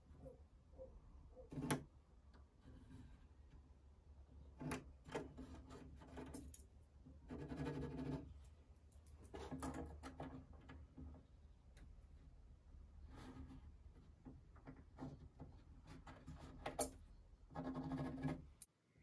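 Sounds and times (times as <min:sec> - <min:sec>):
pencil scratching on wood: 0:02.6 - 0:03.5, 0:07.1 - 0:08.4, 0:13.0 - 0:16.8, 0:17.4 - 0:18.6.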